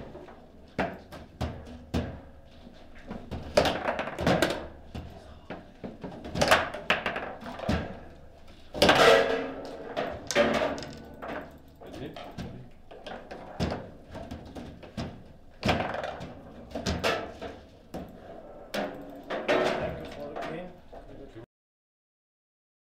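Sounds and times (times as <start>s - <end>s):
foosball players knocking and clacking: 0.0s - 21.2s
ball hitting goal with ringing: 8.8s - 11.6s.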